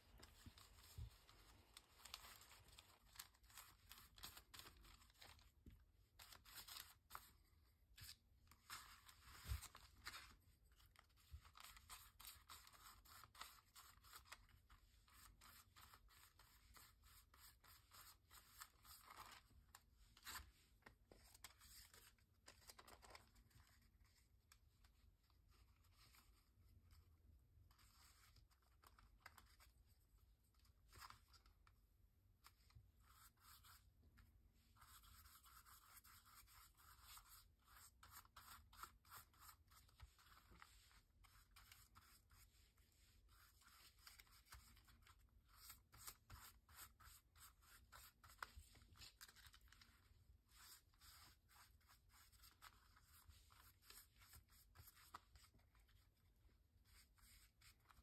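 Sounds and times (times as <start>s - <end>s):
paper being handled: 0.0s - 26.5s, 34.8s - 56.0s
paintbrush scratching on paper: 11.0s - 20.6s, 32.5s - 33.9s, 34.6s - 58.0s.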